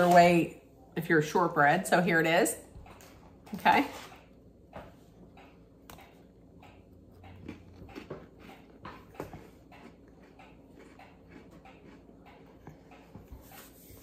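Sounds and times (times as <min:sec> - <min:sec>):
cookie crunching: 0:06.8 - 0:13.3.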